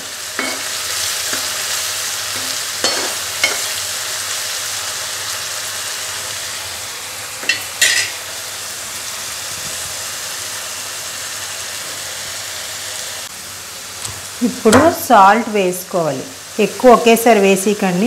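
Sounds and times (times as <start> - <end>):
vegetables sizzling in hot oil: 0.0 - 18.0.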